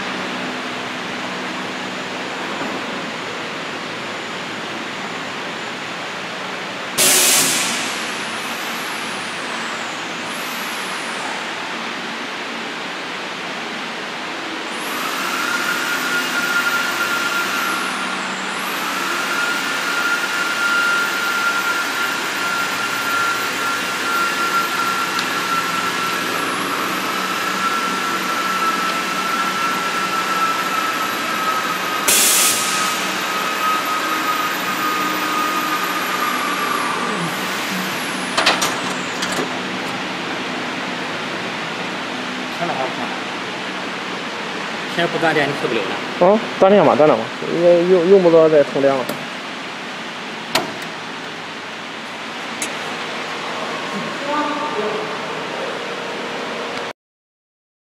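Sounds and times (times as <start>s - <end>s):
short hiss: 7.0s - 8.0s.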